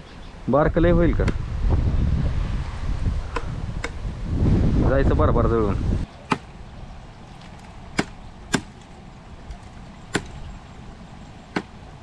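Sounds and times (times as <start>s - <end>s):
dry sticks snapping: 7.3s - 10.4s.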